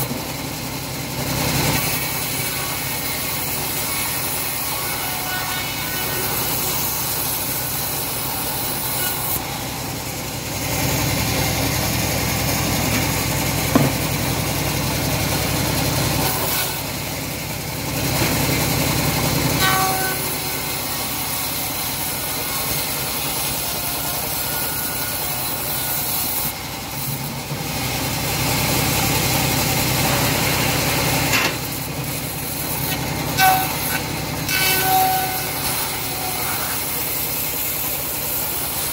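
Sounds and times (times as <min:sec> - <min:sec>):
bandsaw sawing through wood: 0:01.3 - 0:38.9
sharp knock: 0:13.7 - 0:14.0.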